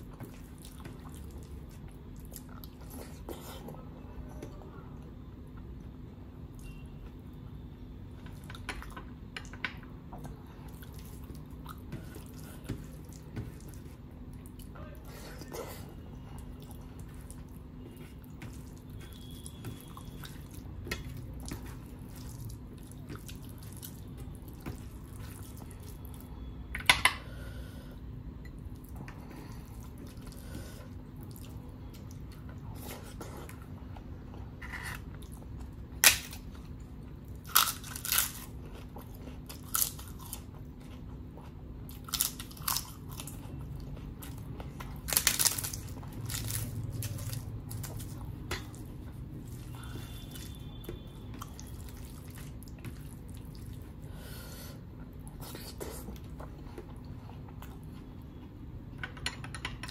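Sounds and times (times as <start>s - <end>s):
crisp papad crunching: 45.0s - 48.2s.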